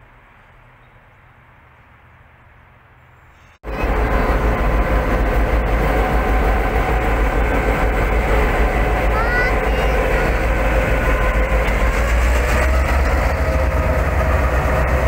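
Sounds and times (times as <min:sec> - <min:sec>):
diesel locomotive engine rumble: 0:00.0 - 0:15.0
distant rail and traffic hiss: 0:00.0 - 0:15.0
steady tones: 0:03.5 - 0:15.0.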